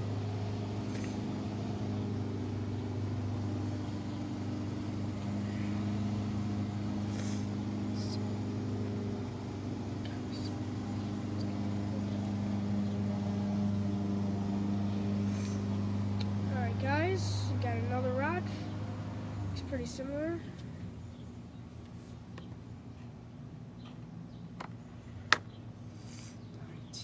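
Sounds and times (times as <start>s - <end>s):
machine humming: 0.0s - 20.4s.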